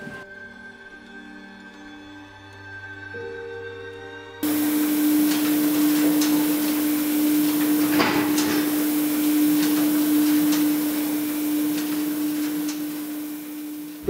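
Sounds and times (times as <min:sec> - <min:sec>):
constant machine whine: 0:04.4 - 0:14.0
printing press humming: 0:04.4 - 0:14.0.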